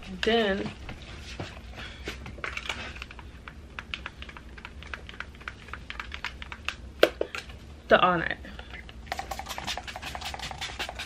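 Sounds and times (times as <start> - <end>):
makeup bottles and brushes clicking: 9.1 - 11.0.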